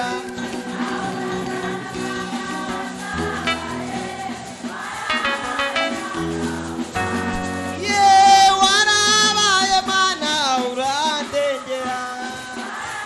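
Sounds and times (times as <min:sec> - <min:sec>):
person singing: 0:00.0 - 0:04.2, 0:05.1 - 0:12.7
instrumental chords over bass: 0:05.1 - 0:07.9.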